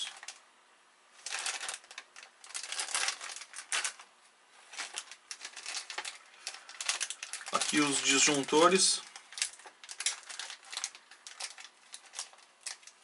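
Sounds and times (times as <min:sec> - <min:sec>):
plastic bags crinkling: 0:00.0 - 0:00.4, 0:01.2 - 0:13.0.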